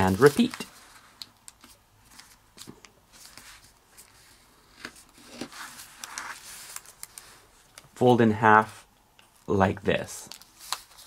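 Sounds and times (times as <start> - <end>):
paper being folded and creased: 0.0 - 7.6, 10.3 - 11.0.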